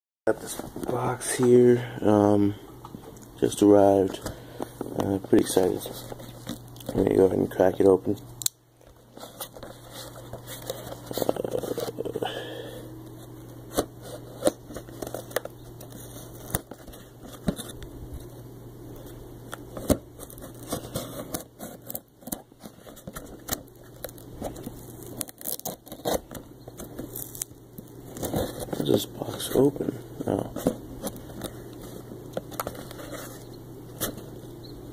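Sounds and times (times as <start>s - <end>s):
cardboard tearing and crackling: 19.7s - 34.3s.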